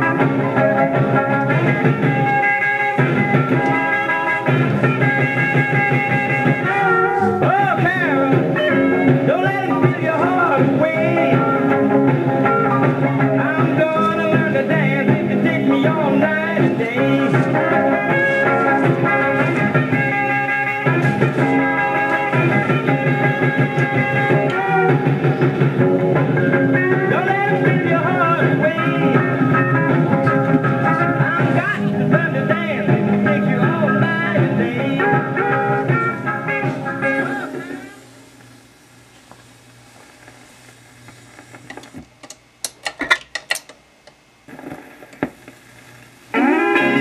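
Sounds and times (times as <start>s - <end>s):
music from record player: 0.0s - 47.0s
steady low hum: 0.2s - 47.0s
record changer mechanical clicks: 38.4s - 46.2s.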